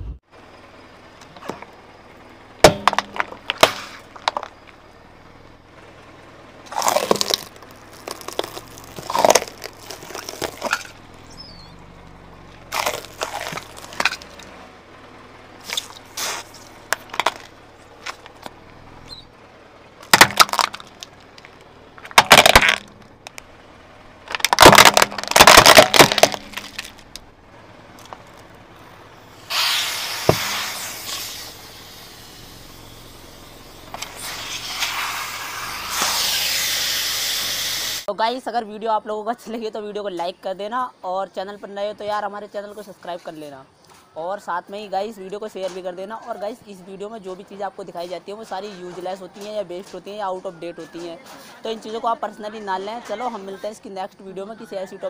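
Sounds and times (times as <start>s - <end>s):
tyre crushing plastic bottles: 2.6s - 4.8s, 6.7s - 11.0s, 12.7s - 14.5s, 15.6s - 18.6s, 20.0s - 23.4s, 24.2s - 27.2s
spraying hiss: 29.3s - 38.1s.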